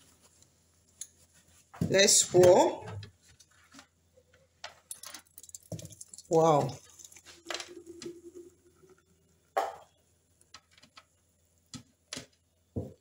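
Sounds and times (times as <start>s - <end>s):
smoothie pouring: 5.2s - 9.2s.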